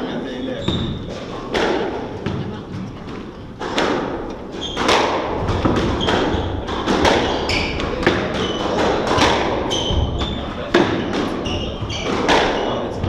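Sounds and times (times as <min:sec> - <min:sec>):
shoe squeaks on wooden floor: 0:00.5 - 0:01.4, 0:04.5 - 0:04.9, 0:05.9 - 0:09.0, 0:09.6 - 0:13.0
squash ball hits: 0:00.6 - 0:02.5, 0:03.1 - 0:13.0.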